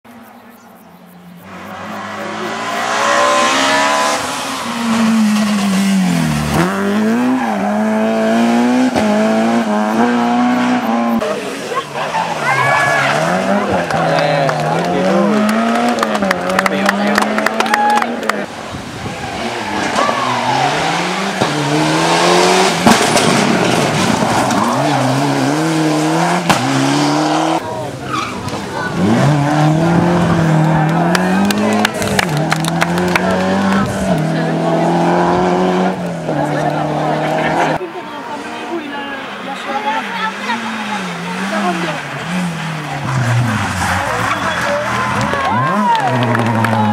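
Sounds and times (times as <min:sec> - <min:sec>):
rally car engine revving: 0:01.3 - 0:46.9
sharp crack: 0:22.7 - 0:24.8.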